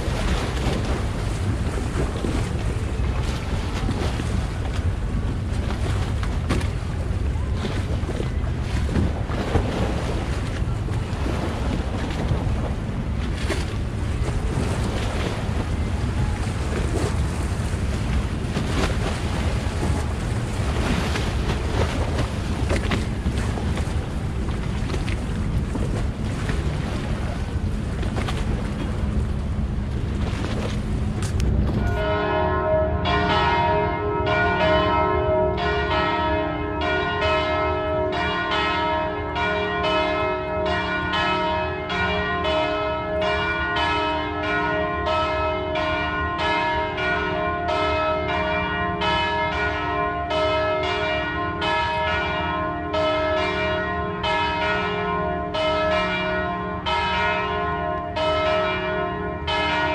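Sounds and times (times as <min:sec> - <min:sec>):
water: 0:00.0 - 0:59.9
wind: 0:00.0 - 0:59.9
church bells ringing: 0:31.8 - 0:59.9.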